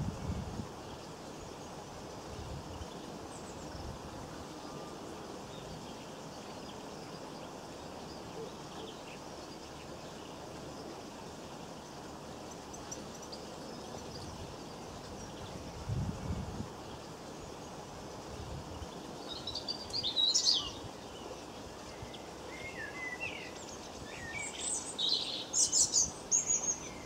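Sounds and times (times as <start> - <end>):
outdoor background hiss: 0.0 - 27.0.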